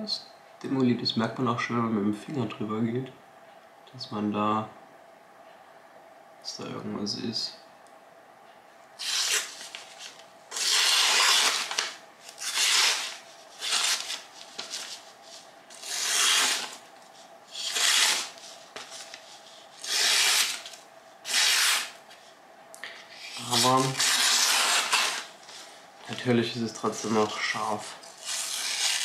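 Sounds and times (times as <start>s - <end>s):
rasping rubbing strokes: 15.3s - 16.8s, 17.5s - 20.7s.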